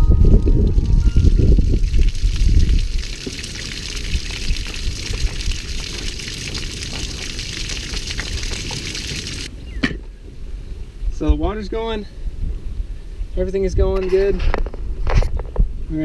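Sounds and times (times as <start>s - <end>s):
water spraying onto gravel: 0.4s - 9.5s.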